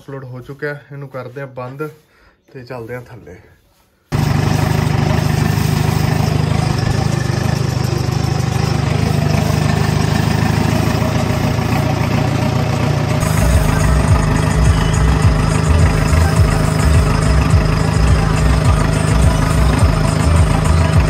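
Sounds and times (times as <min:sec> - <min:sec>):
tractor diesel engine running: 0:04.2 - 0:21.0.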